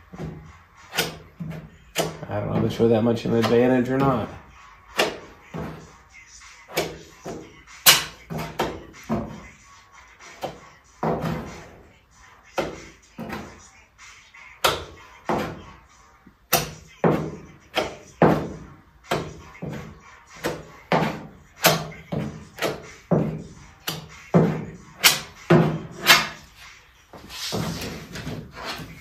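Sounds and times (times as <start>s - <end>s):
metal spreader scraping putty: 23.8s - 26.6s.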